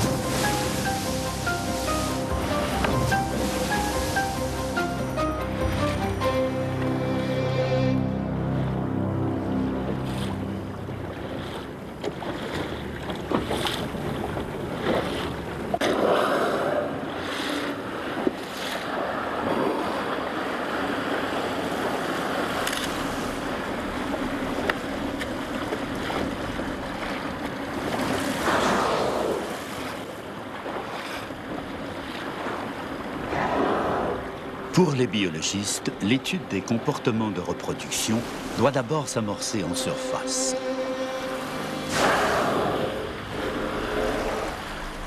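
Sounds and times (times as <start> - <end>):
water slapping and splashing: 0.0 - 7.1, 8.7 - 45.0
whale blow whoosh: 28.3 - 30.0, 33.2 - 34.4, 41.1 - 45.0.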